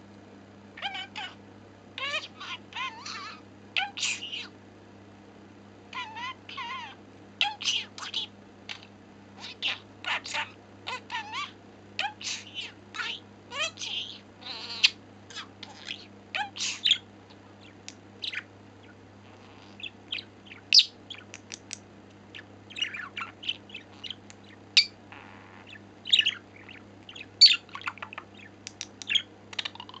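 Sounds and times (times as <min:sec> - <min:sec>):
steady low hum: 0:00.0 - 0:30.0
budgerigar chattering: 0:09.4 - 0:17.0, 0:17.6 - 0:21.7, 0:22.4 - 0:30.0.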